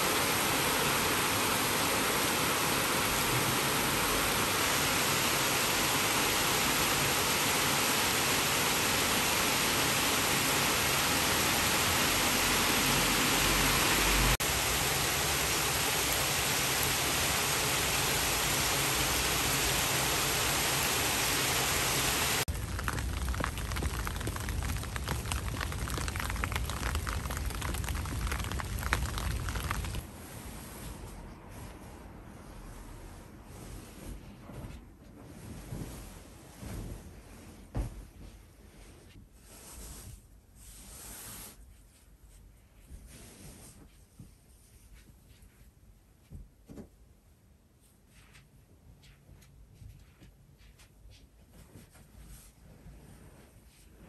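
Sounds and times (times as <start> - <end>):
heavy rain pouring: 0.0 - 30.0
crackling rain drops: 3.0 - 30.1.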